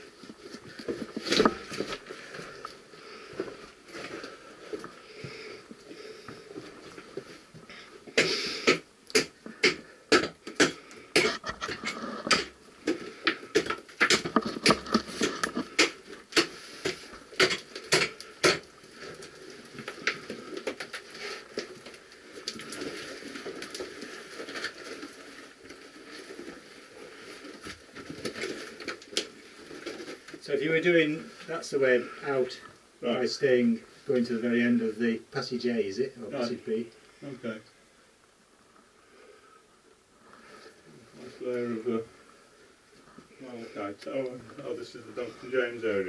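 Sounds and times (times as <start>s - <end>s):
stones clicking and knocking: 8.7s - 25.1s.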